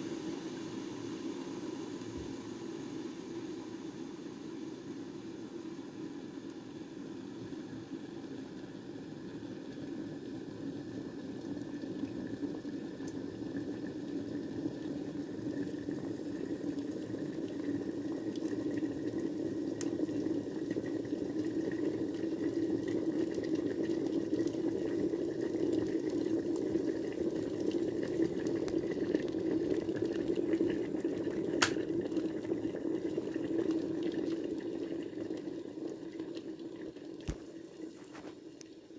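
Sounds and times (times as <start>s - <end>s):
kettle water boiling: 0.0s - 38.9s
kettle sharp click: 31.6s - 31.8s.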